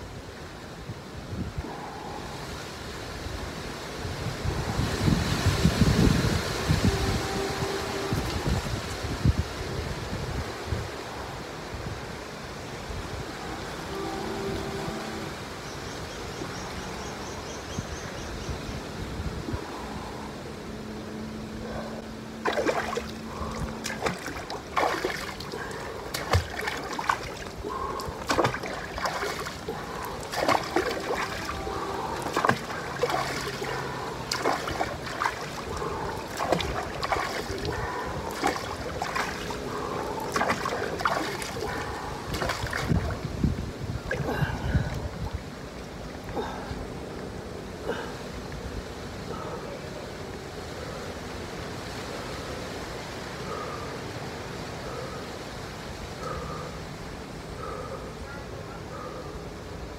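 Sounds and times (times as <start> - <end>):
water splashing in pool: 22.4 - 43.3.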